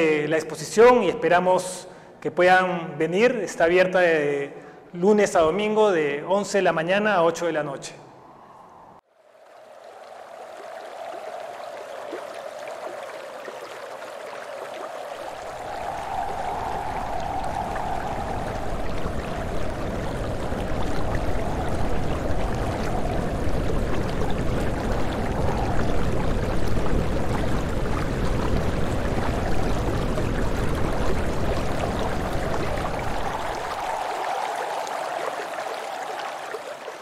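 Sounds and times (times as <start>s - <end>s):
rushing stream-like noise: 9.1s - 37.0s.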